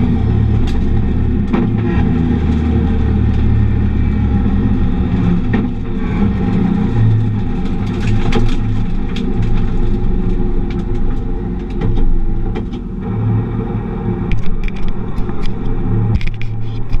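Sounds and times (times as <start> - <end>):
car engine running at low revs: 0.0 - 17.0
clicks and knocks from handling camera: 14.3 - 17.0.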